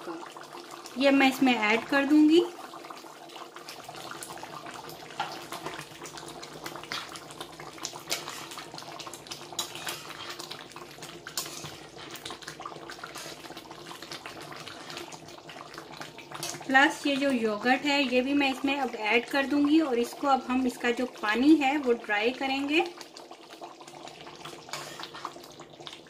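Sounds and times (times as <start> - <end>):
curry gravy bubbling: 0.0 - 26.0
metal spoon stirring and scraping: 7.9 - 15.2, 24.6 - 25.4.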